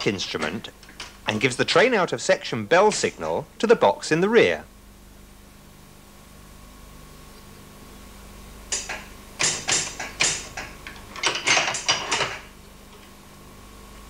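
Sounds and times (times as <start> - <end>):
sharp metallic clacks and clunks: 8.7 - 12.5.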